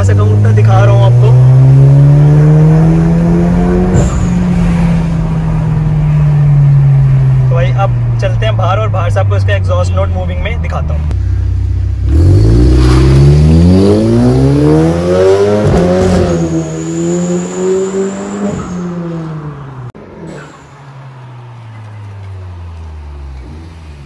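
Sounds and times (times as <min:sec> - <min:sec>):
car engine accelerating hard: 0:00.0 - 0:08.5, 0:11.1 - 0:20.6.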